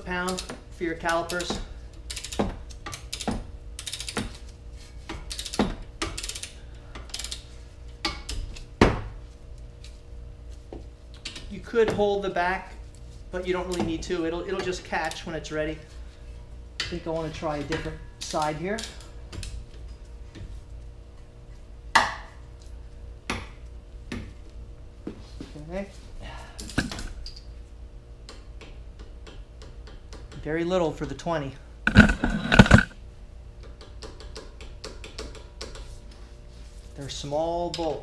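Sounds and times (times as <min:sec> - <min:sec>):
socket ratchet clicking: 0:02.1 - 0:04.2, 0:05.3 - 0:07.4
metal clicks and knocks: 0:31.9 - 0:33.0.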